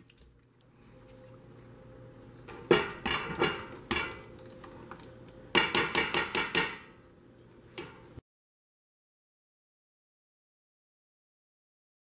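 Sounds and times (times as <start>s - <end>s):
potato masher clanking on saucepan: 5.6s - 6.9s.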